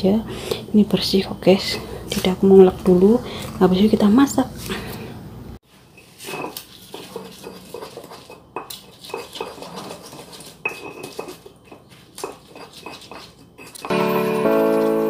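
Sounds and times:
stone pestle grinding in mortar: 6.0 - 15.0.

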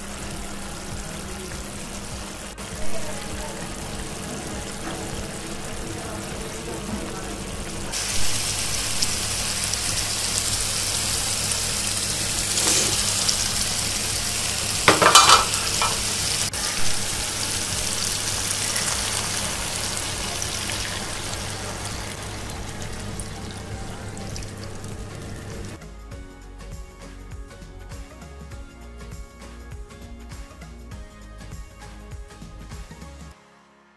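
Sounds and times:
masala sizzling in hot oil: 0.0 - 25.8
spatula scraping a pan: 12.5 - 13.1.

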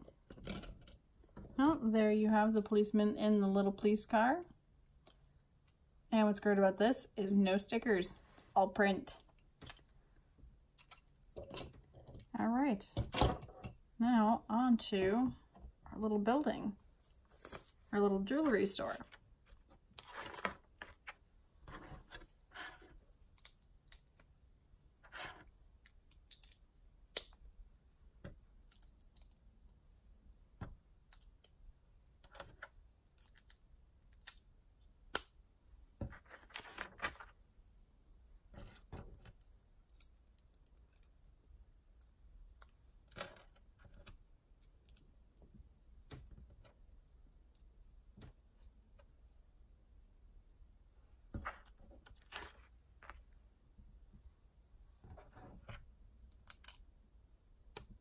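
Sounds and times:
rustling of small plastic parts: 32.2 - 34.5, 36.2 - 37.4, 38.6 - 45.1.

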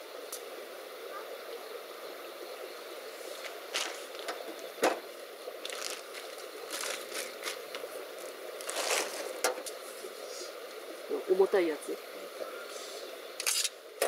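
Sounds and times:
steady background hiss: 0.0 - 14.0
fabric and plastic rustling: 3.3 - 4.4, 5.6 - 10.1.

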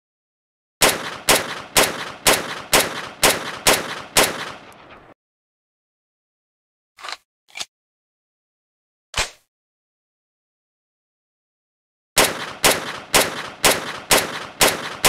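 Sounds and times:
pistol shots with echo: 0.8 - 5.2, 12.2 - 15.0.

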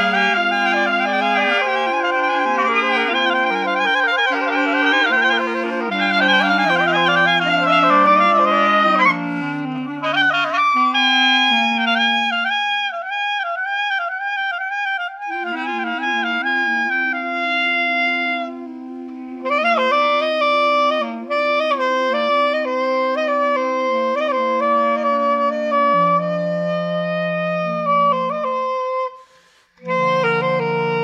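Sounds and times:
clarinet playing: 0.0 - 31.0.

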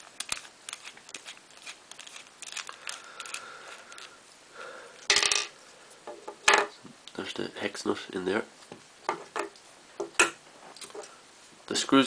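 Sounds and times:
plastic parts being handled: 0.0 - 4.1.

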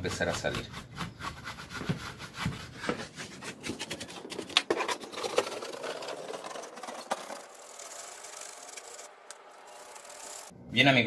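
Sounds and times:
paintbrush scrubbing plastic grille: 6.7 - 10.5.

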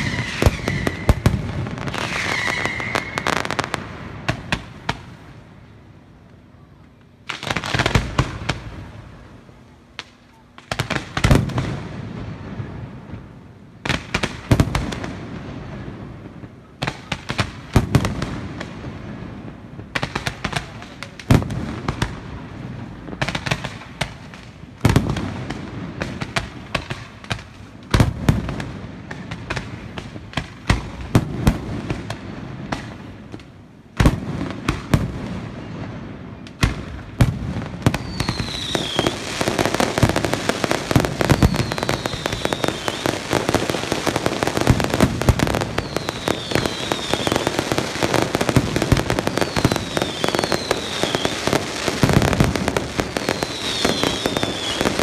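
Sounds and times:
falling firework whistles: 0.0 - 4.6, 37.8 - 55.0
fireworks bangs: 0.0 - 5.7, 7.1 - 55.0
fireworks crackling: 0.0 - 55.0.

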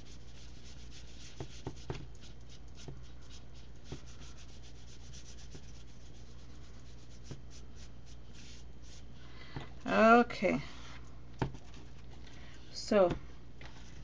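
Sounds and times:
paintbrush strokes on canvas: 0.0 - 9.2.

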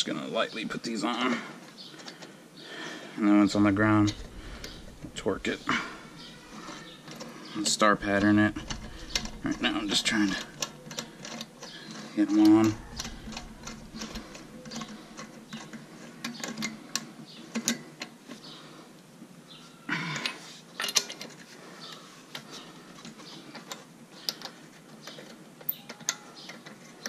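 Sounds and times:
loud metallic clatter: 3.5 - 11.3.

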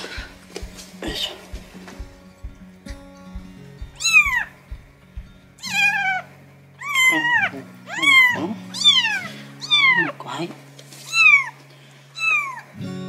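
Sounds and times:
kitten mewing: 5.7 - 6.2, 6.8 - 10.1, 12.2 - 12.7.

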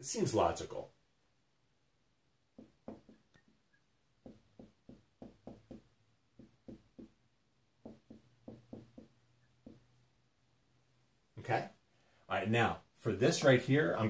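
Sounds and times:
marker writing on whiteboard: 2.6 - 7.2, 7.8 - 10.0.

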